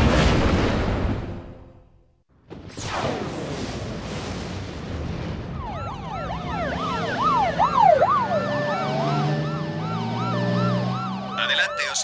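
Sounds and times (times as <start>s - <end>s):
emergency sirens wailing: 5.5s - 12.0s.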